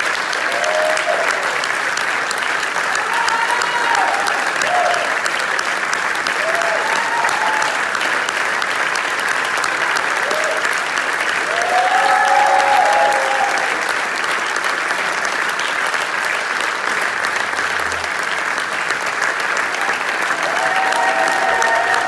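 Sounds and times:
audience applauding: 0.0 - 22.0
voices cheering: 0.4 - 1.7, 2.8 - 5.4, 6.2 - 8.0, 10.2 - 10.8, 11.4 - 13.9, 19.8 - 22.0.

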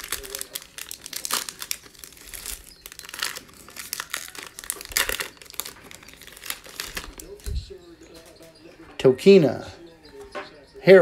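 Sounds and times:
foil wrapper tearing and crinkling: 0.0 - 7.4.

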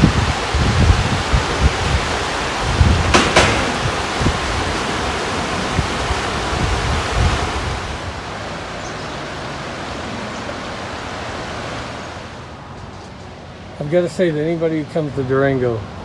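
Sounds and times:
river rapids rushing: 0.0 - 12.7
wind gusting on microphone: 0.0 - 12.7.

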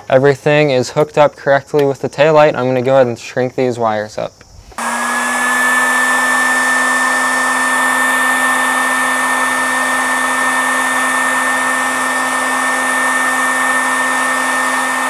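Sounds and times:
heat gun motor whine: 4.7 - 15.0.

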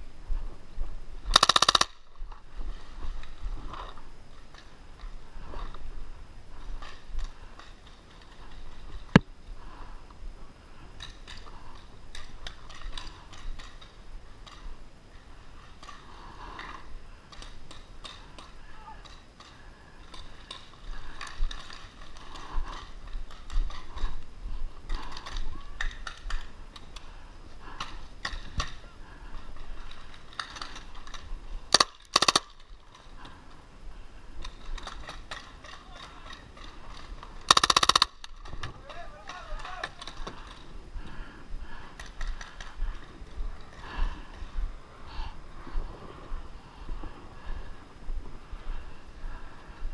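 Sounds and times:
clicks and pops: 30.3 - 32.6, 34.4 - 38.6
paintball marker bursts: 31.7 - 32.5, 37.5 - 38.1
faint voices: 35.4 - 37.2.

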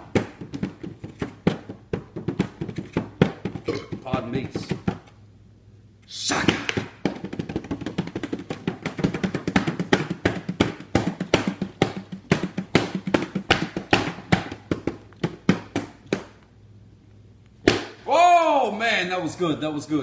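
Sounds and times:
bongos played by hand: 0.0 - 5.0, 6.7 - 16.3.

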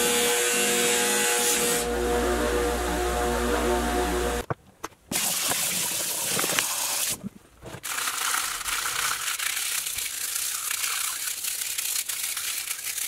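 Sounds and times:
tap water running into tub: 5.1 - 7.2, 7.8 - 13.0
scrub brush rasping in suds: 7.8 - 13.0.

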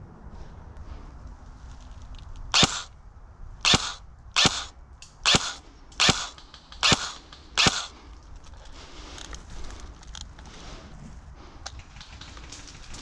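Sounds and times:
airsoft rifle shots: 2.5 - 2.9, 3.6 - 8.0.

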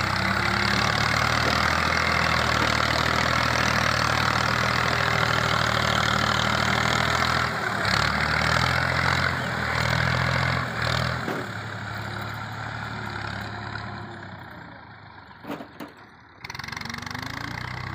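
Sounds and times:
tractor diesel engine running: 0.0 - 17.9.

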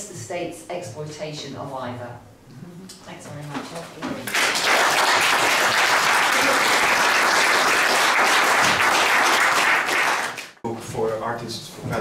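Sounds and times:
audience applauding: 4.3 - 10.6.

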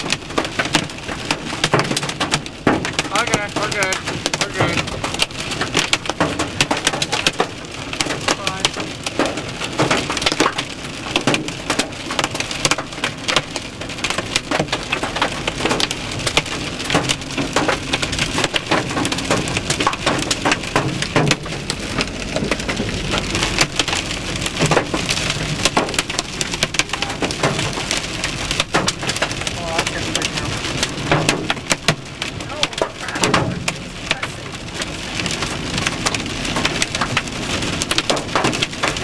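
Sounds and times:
hail and rain on car roof: 0.0 - 39.0.

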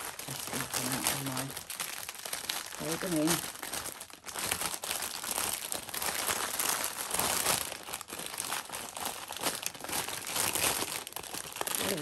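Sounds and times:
plastic bags crinkling: 0.0 - 12.0.

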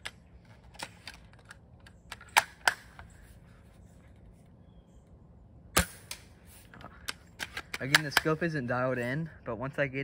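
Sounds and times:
airsoft rifle clicks and clacks: 7.0 - 8.4.

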